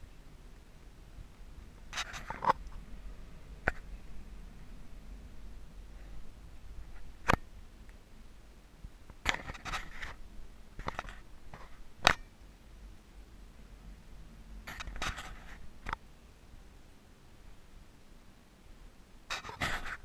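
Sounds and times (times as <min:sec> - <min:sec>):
rustling scrapes: 0:01.9 - 0:02.7, 0:09.3 - 0:10.2, 0:14.7 - 0:15.8, 0:19.3 - 0:20.0.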